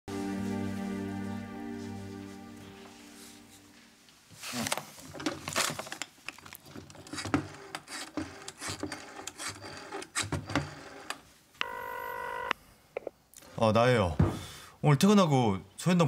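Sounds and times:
telephone ringing tone: 0:10.5 - 0:12.6.

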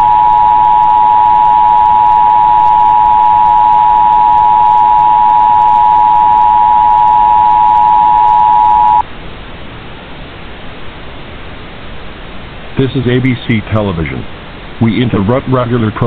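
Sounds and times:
two-tone alarm: 0:00.0 - 0:09.0
steady hiss: 0:09.0 - 0:16.0.

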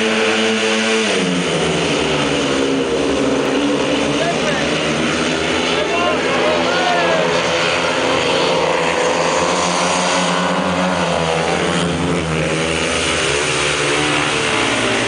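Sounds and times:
motorcycles racing: 0:00.0 - 0:15.0.

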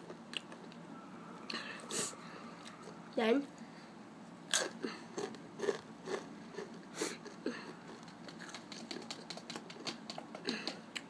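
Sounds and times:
chips being chewed: 0:04.5 - 0:11.0.

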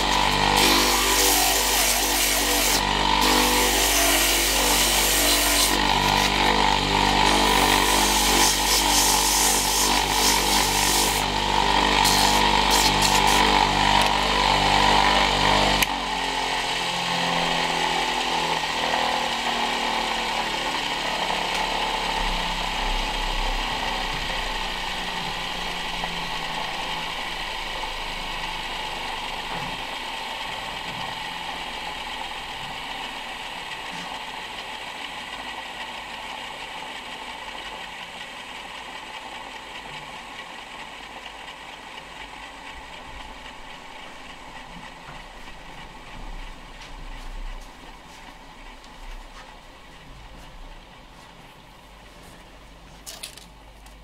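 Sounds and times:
sandpaper sanding spinning wood: 0:00.0 - 0:15.4
lathe motor hum: 0:00.0 - 0:52.8.

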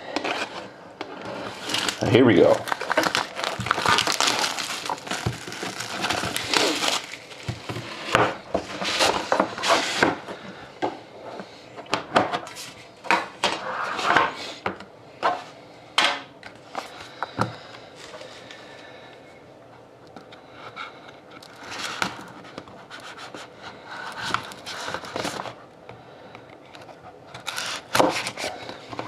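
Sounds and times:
plastic wrap crinkling: 0:01.3 - 0:10.2, 0:24.1 - 0:25.6.

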